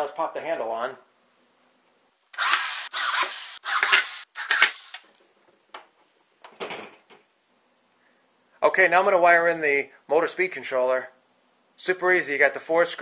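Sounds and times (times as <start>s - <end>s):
power drill driving screws into wood: 2.3s - 5.0s.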